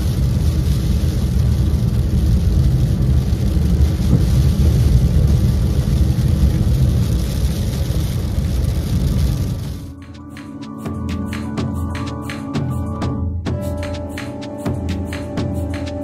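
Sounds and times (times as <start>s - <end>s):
car cabin road rumble: 0.0s - 10.0s
tyre hiss on wet road: 0.0s - 10.0s.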